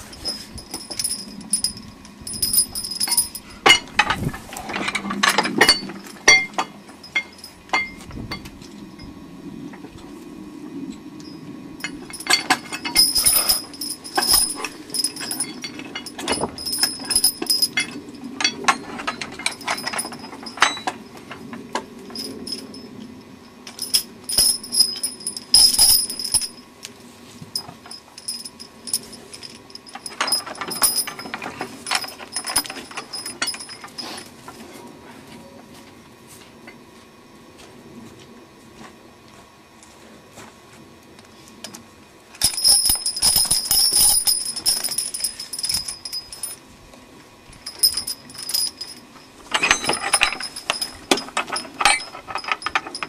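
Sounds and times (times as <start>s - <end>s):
harness chains clinking and jingling: 0.0s - 8.4s, 11.8s - 21.0s, 22.1s - 23.0s, 23.7s - 26.7s, 27.6s - 34.4s, 42.4s - 46.6s, 47.5s - 53.0s.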